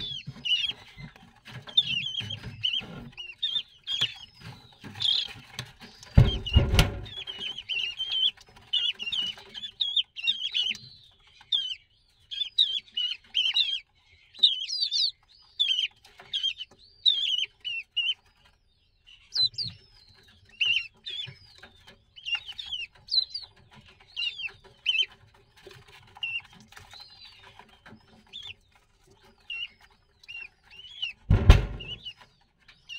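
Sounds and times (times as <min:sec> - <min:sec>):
chicks peeping: 0:00.0 - 0:32.9
dull thump: 0:06.2 - 0:07.2, 0:31.3 - 0:32.1.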